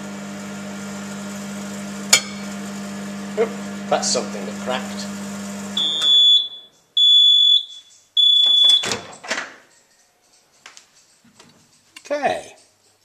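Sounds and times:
microwave oven humming: 0.0 - 7.2
long high beeps: 5.8 - 9.1.

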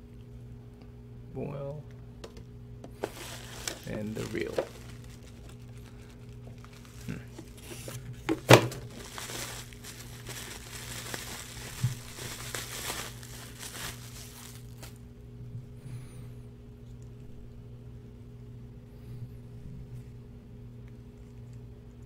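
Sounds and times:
bubble wrap crinkling: 3.0 - 15.1
bubble wrap snap: 8.4 - 15.0.

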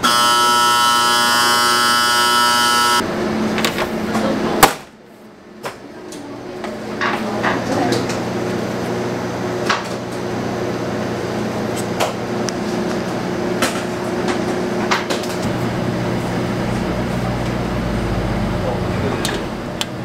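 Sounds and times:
steady machine hum: 0.0 - 5.6, 6.2 - 20.0
deep hum: 15.4 - 20.0.

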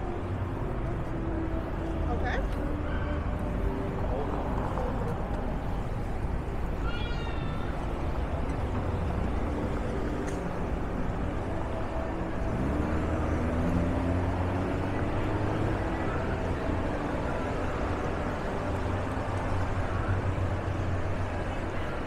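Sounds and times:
hum of traffic: 0.0 - 22.0
engine accelerating: 9.0 - 21.2.

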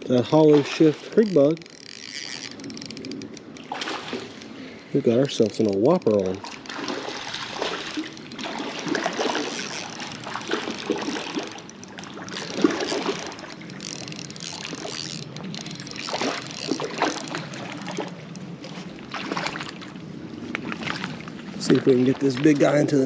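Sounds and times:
fish splashing in water: 0.0 - 4.8, 5.4 - 20.0
running creek water: 0.0 - 23.0
spinning reel clicks: 1.2 - 3.6, 9.5 - 16.8.

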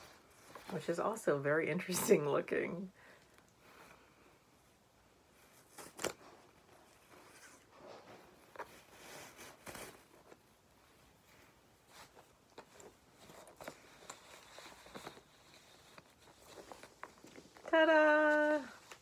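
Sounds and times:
cloth bag rustling: 11.1 - 19.0
light clicks and scrapes: 11.2 - 17.6.

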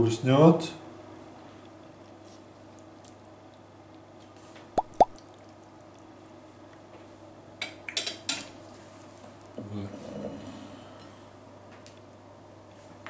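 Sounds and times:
drip-like plops: 4.8 - 5.4.

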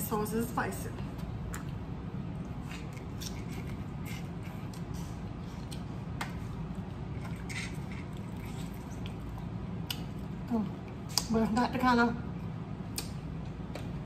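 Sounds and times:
steady low hum: 0.0 - 14.0
wet chewing: 1.2 - 11.3.

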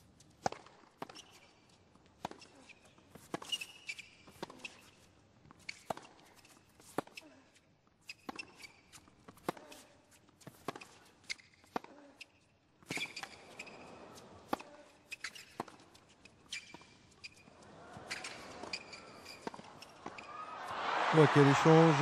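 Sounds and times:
shoes squeaking on court: 0.0 - 20.7
rackets striking tennis ball: 14.4 - 20.7
stadium crowd noise: 17.5 - 22.0.

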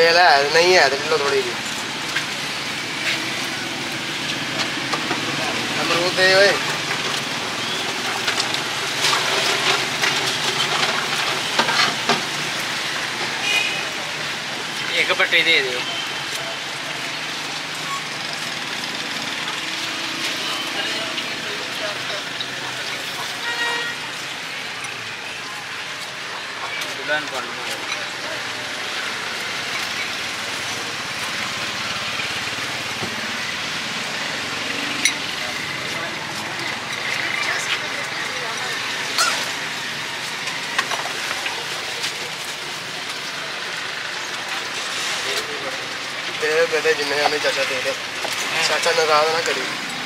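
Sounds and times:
roadside traffic noise: 0.0 - 50.0
street noise hiss: 0.0 - 50.0.

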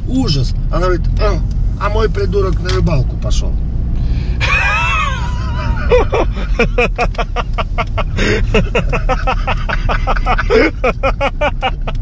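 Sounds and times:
car engine and road rumble: 0.0 - 12.0
person laughing: 4.4 - 12.0.

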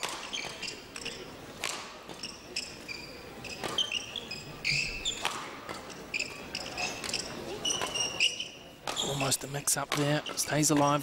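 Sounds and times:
racket hitting shuttlecock: 0.0 - 2.8, 5.0 - 6.0
shoes squeaking on court: 0.0 - 11.0.

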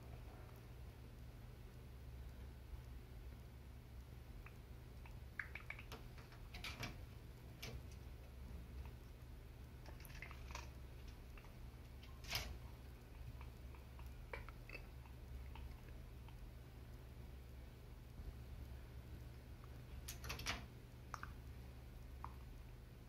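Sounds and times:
low room hum: 0.0 - 23.0
parrot clicking and scraping: 5.0 - 9.0, 9.8 - 12.6, 20.0 - 20.7.

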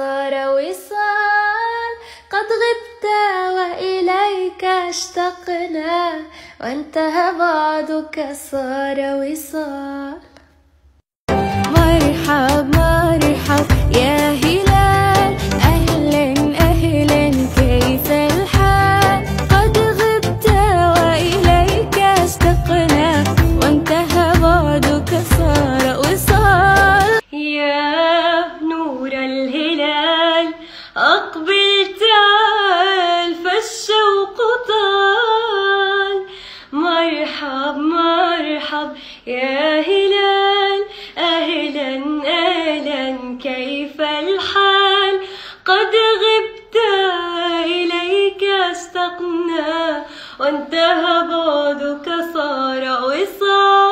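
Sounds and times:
woman singing solo: 11.3 - 33.6.

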